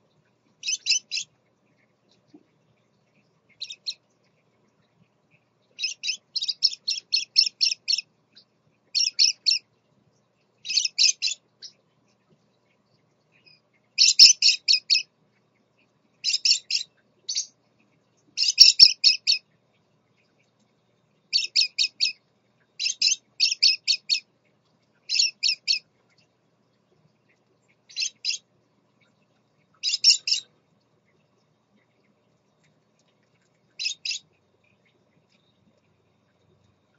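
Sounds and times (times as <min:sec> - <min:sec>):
parakeets chirping: 0:00.6 - 0:01.3, 0:03.5 - 0:04.0, 0:05.8 - 0:08.0, 0:08.9 - 0:09.6, 0:10.6 - 0:11.7, 0:13.4 - 0:15.1, 0:16.2 - 0:17.5, 0:18.4 - 0:19.4, 0:21.3 - 0:22.2, 0:22.8 - 0:24.2, 0:25.1 - 0:25.9, 0:27.9 - 0:28.4, 0:29.8 - 0:30.5, 0:33.8 - 0:34.2.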